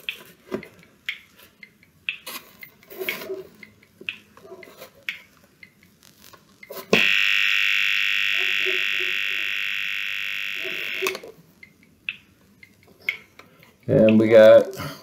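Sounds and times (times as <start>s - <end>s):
high-pitched electronic buzzer: 7.0s - 11.3s.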